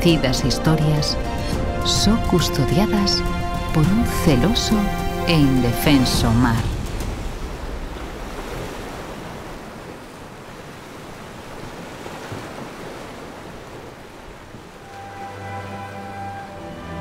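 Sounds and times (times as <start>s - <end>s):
sustained string notes: 0.0s - 7.3s, 14.8s - 17.0s
sea surf washing in: 3.4s - 17.0s.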